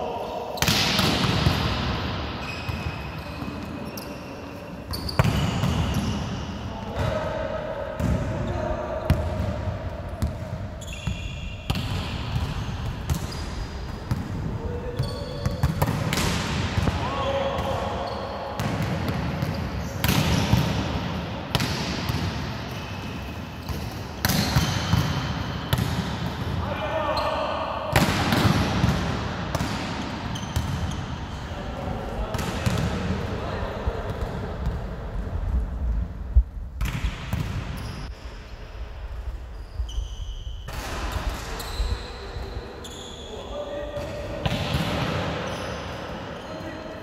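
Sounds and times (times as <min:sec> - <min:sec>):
volleyballs struck and bouncing: 0:00.6 - 0:03.7, 0:04.9 - 0:07.4, 0:11.7 - 0:17.8, 0:18.6 - 0:22.8, 0:23.6 - 0:26.6, 0:27.9 - 0:31.1, 0:36.8 - 0:37.8
volleyballs hit and bouncing on floor: 0:00.6 - 0:03.8, 0:27.9 - 0:30.9.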